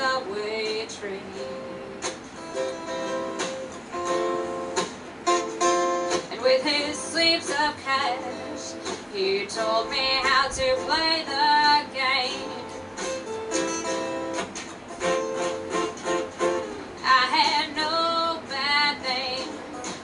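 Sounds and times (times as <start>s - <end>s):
woman singing: 0.0s - 1.9s, 6.3s - 12.8s, 17.0s - 20.0s
acoustic guitars strummed: 0.0s - 20.0s.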